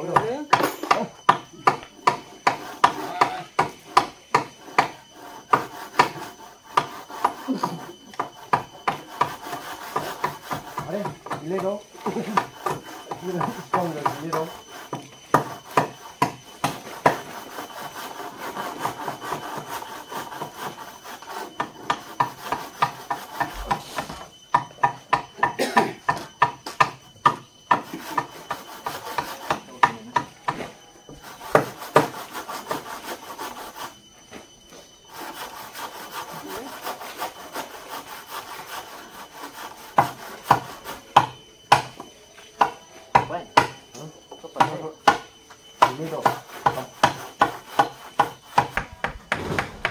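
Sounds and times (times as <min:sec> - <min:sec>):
hand saw cutting wood: 0:00.0 - 0:24.2, 0:24.8 - 0:30.3, 0:31.1 - 0:34.0, 0:35.1 - 0:41.9, 0:45.8 - 0:49.9.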